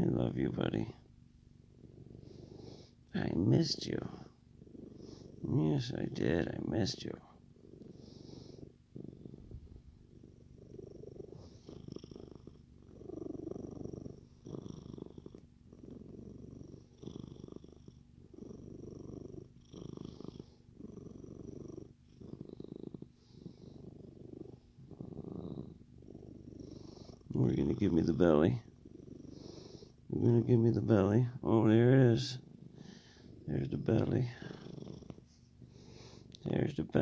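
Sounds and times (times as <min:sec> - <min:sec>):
cat purring: 0:00.0 - 0:37.0.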